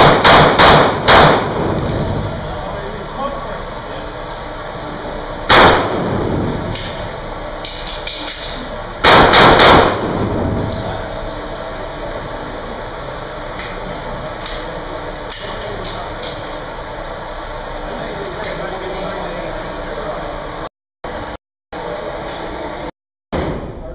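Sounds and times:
echoing handgun shots: 0.0 - 2.0, 5.5 - 6.8, 9.0 - 10.6.

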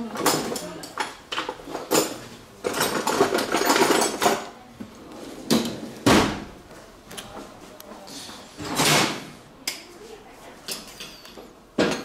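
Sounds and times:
metal tools clicking and clattering: 0.2 - 4.5, 10.7 - 12.0.

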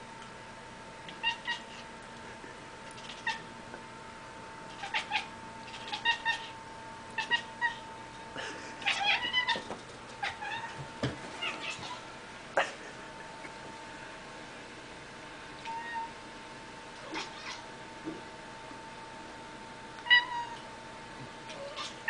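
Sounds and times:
cat chirping meows: 1.2 - 1.8, 4.7 - 6.5, 15.6 - 16.1, 20.0 - 20.6.

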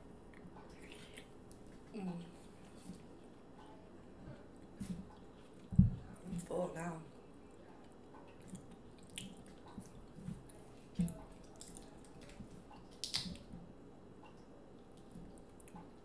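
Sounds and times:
wet peeling of shrimp: 0.7 - 1.9, 8.4 - 13.5.

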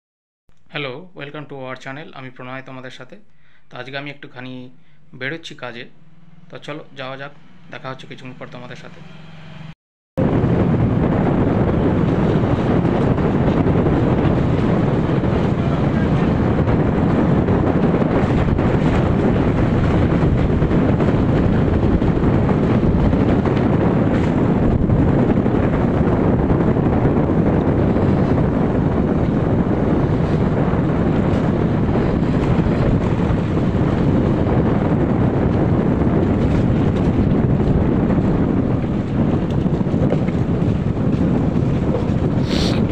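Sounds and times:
road noise: 4.8 - 37.7, 41.9 - 42.9
wind buffeting microphone: 10.2 - 42.9
motorcycle running: 10.5 - 42.9.

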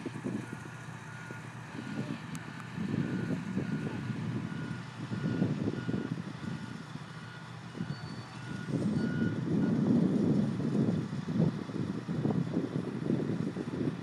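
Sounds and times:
vehicle reversing alarm beeping: 0.0 - 9.9.

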